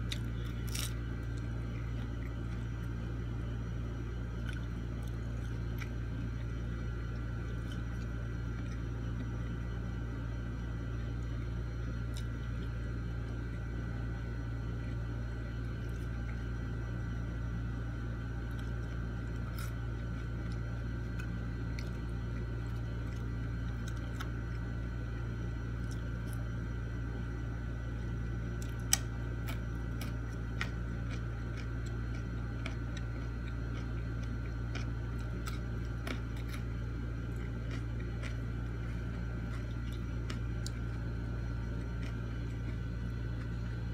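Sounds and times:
steady low hum: 0:00.0 - 0:43.9
chewing: 0:28.5 - 0:43.9.

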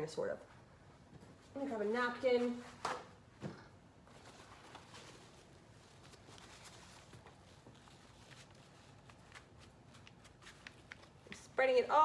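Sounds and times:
brush and napkin tapping and rustling: 0:06.1 - 0:11.6.

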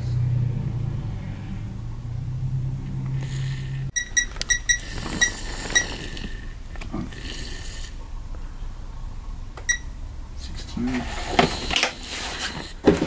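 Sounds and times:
steady low hum: 0:00.0 - 0:13.0
torque wrench beeping: 0:03.9 - 0:06.2.

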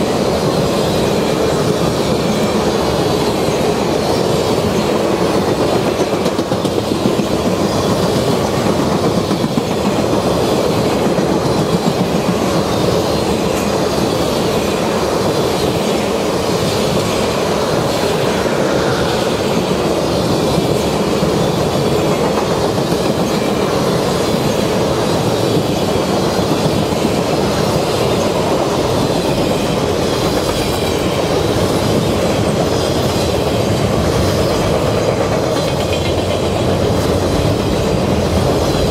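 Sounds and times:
train rolling past rumbling: 0:00.0 - 0:38.9
wheels clicking over rail joints: 0:20.6 - 0:38.9.

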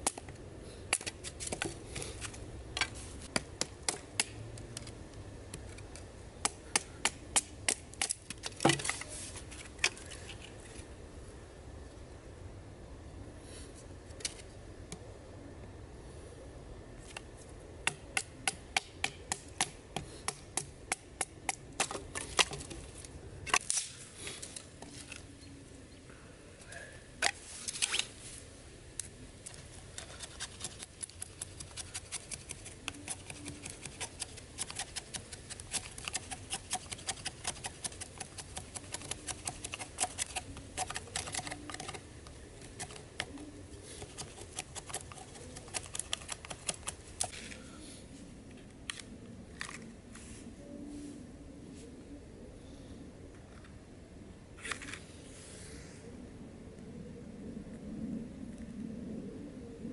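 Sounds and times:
knife scraping a stick: 0:05.6 - 0:10.9, 0:29.5 - 0:47.6.

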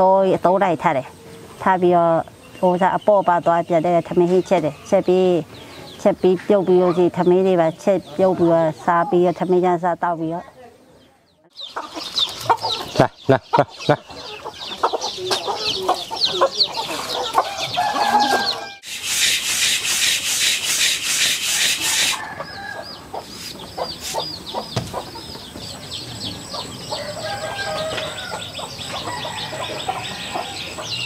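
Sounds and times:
chickens clucking: 0:00.0 - 0:31.0
chicks peeping: 0:00.1 - 0:10.4, 0:11.0 - 0:31.0
hands rubbing against a dish: 0:18.9 - 0:22.2.

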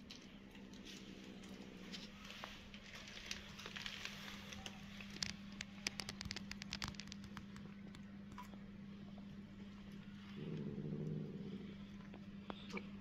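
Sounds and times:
cats chewing: 0:00.0 - 0:13.0
steady low hum: 0:00.0 - 0:13.0
plastic bag crinkling: 0:00.7 - 0:07.7.

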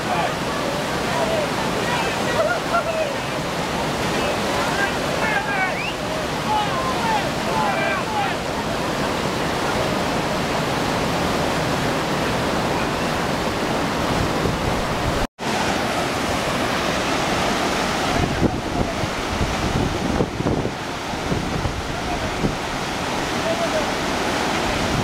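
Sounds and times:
whitewater rapids rushing: 0:00.0 - 0:25.0
wind buffeting microphone: 0:11.0 - 0:15.3, 0:16.2 - 0:23.4, 0:24.0 - 0:25.0.

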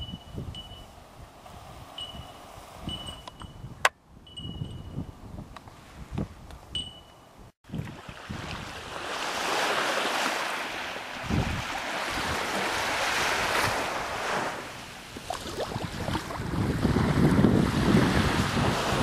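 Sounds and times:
wind buffeting microphone: 0:00.0 - 0:09.8, 0:11.1 - 0:19.0
sea surf washing in: 0:07.8 - 0:19.0.

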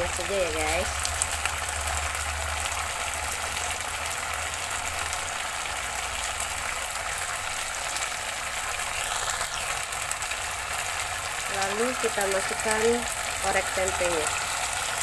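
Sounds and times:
sauce bubbling and sizzling in a wok: 0:00.0 - 0:15.0.

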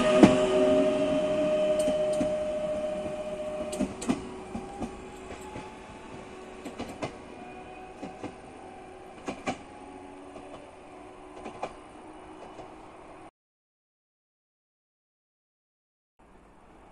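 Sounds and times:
electric train whine: 0:00.0 - 0:13.3.

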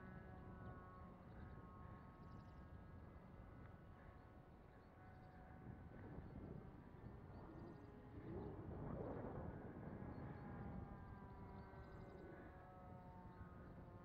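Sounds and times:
wind rumble on microphone: 0:05.2 - 0:14.0.

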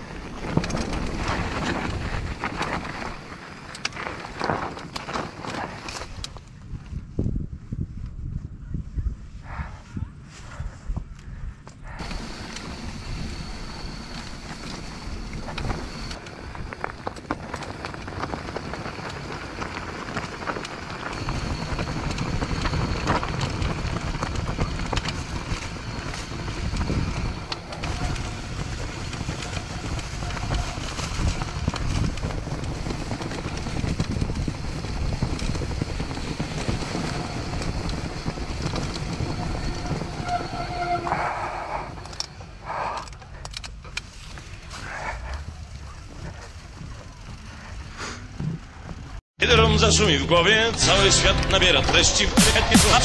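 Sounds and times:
tyres rumbling on dirt: 0:00.0 - 0:06.3, 0:12.0 - 0:42.6, 0:44.0 - 0:53.0
wind noise on microphone: 0:00.0 - 0:42.9
bike rattling clicks: 0:00.2 - 0:06.5, 0:42.0 - 0:47.9.

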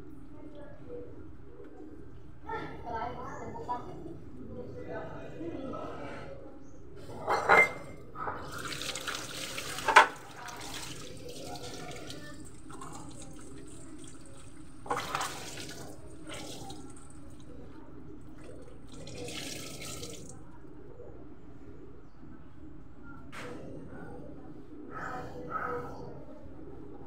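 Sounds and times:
tap water running into sink: 0:08.5 - 0:17.2, 0:18.5 - 0:20.4.

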